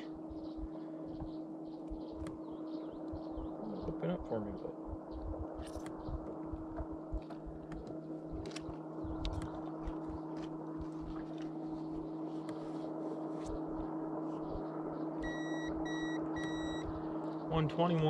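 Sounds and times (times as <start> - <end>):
electric hum: 0.0 - 18.0
wind on microphone: 3.2 - 10.3
digital scale beeps: 15.2 - 16.8.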